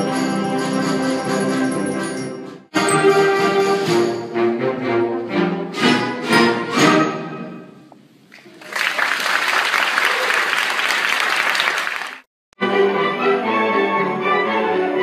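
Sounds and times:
audience applauding: 8.3 - 12.3.

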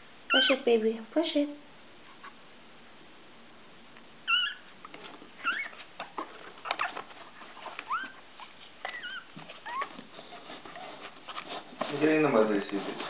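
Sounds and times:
puppy squeaking: 0.3 - 0.7, 4.2 - 11.1
paws scratching on paper: 4.3 - 13.0.

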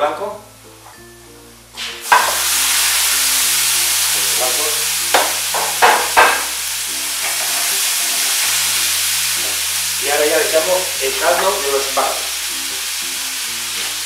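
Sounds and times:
loud sizzle in a pan: 0.5 - 14.0
utensil knocking in a pan: 2.1 - 2.5, 5.1 - 6.6.

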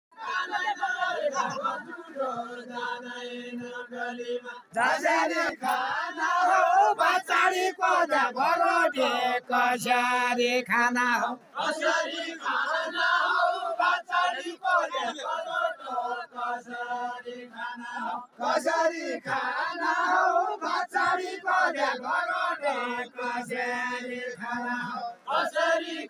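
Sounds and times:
men singing unaccompanied: 0.1 - 26.0.

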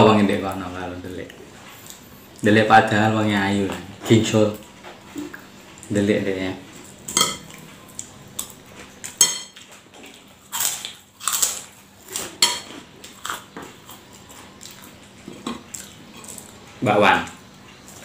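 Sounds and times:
chewing food: 6.7 - 18.0.

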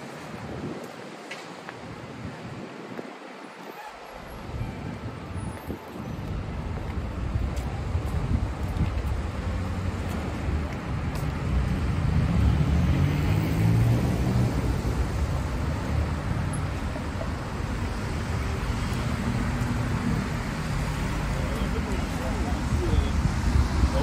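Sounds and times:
traffic on wet road: 0.0 - 24.0
vehicle passing: 11.2 - 16.2.

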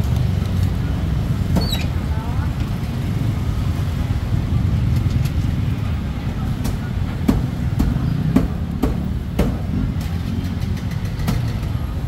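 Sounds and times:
low rumble of motor traffic: 0.0 - 12.0
sharp knocks: 6.6 - 9.8.

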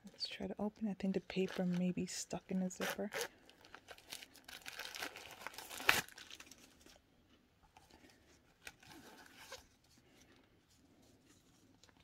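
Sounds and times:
paper crinkling and tearing: 2.8 - 7.0
sharp paper crackle: 2.8 - 7.0.

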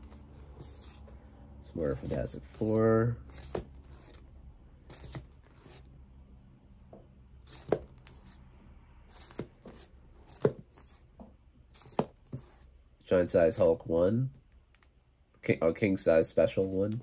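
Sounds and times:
comic books slapping and rustling: 1.8 - 4.2, 4.9 - 5.8, 7.4 - 8.4, 9.1 - 11.1, 11.7 - 12.6.

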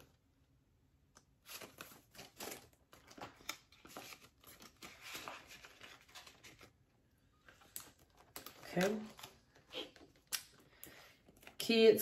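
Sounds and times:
paper banknotes rustling: 1.4 - 6.8.

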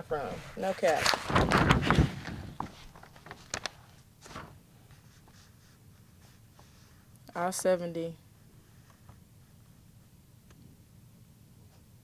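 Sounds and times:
paper rustling: 0.4 - 6.9.

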